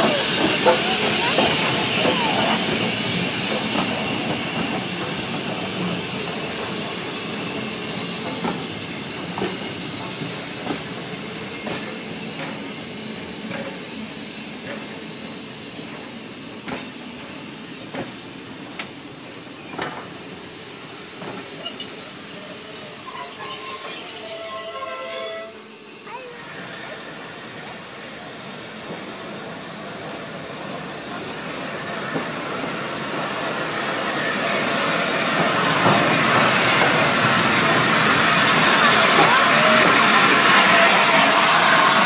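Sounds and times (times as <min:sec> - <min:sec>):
train wheels clicking over rail joints: 0:00.0 - 0:20.2, 0:28.8 - 0:42.0
hiss of steam: 0:00.0 - 0:42.0.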